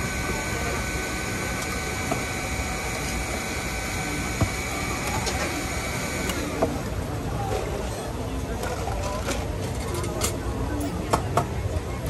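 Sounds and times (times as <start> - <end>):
high whine: 0.0 - 6.6
blender motor running: 0.0 - 6.8.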